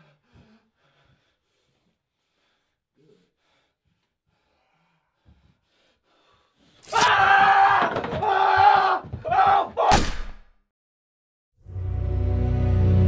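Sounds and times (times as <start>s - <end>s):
person screaming: 6.9s - 9.9s.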